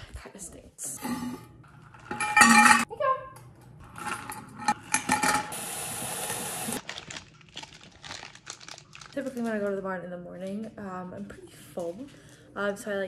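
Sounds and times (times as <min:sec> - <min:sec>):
snack wrappers rustling: 0:06.8 - 0:09.8.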